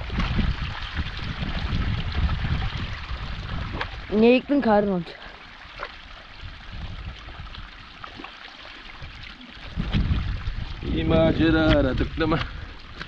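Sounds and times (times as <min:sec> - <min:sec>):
soft splashes and knocks: 0:00.0 - 0:04.2, 0:07.2 - 0:10.8
shallow water running: 0:00.0 - 0:13.0.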